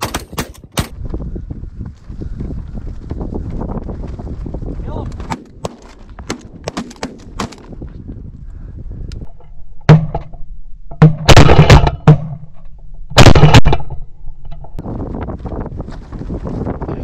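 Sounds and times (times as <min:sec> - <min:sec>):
shotgun blasts: 0:11.0 - 0:12.4, 0:13.2 - 0:14.0.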